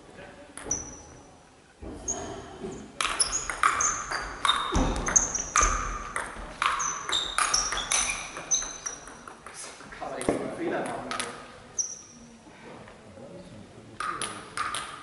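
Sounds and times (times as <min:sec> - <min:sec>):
table tennis ball hits: 0:03.0 - 0:11.4, 0:14.0 - 0:15.0.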